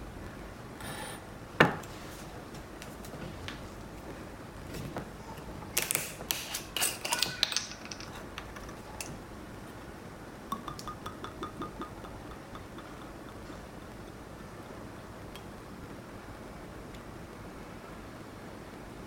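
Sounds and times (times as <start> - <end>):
ice and glassware clinking: 6.5 - 9.2, 10.5 - 14.0.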